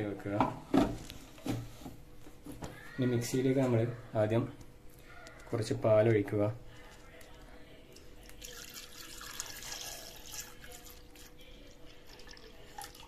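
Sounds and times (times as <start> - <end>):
milk pouring into metal jar: 7.9 - 13.0.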